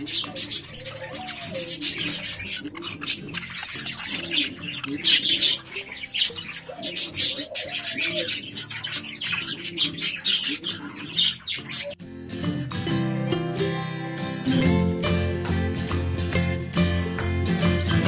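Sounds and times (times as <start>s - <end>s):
budgerigars chattering and warbling: 0.0s - 12.0s.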